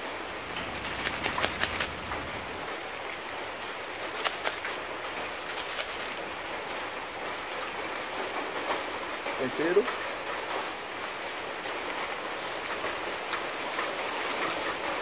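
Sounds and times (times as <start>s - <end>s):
plastic sachet crinkling: 0.6s - 2.6s, 5.4s - 6.2s.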